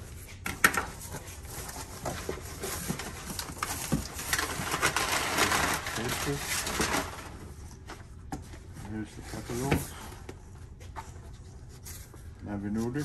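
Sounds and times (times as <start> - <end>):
packing rustling: 1.3 - 7.4.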